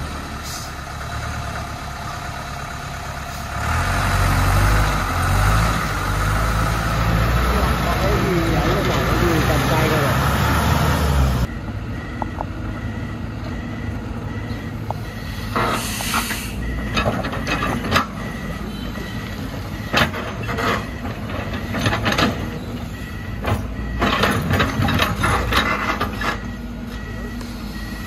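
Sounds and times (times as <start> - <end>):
excavator diesel engine running: 0.0 - 28.0
short hiss: 15.4 - 16.6
rubble clanking and clattering: 16.8 - 18.4, 19.5 - 22.8, 23.4 - 26.5.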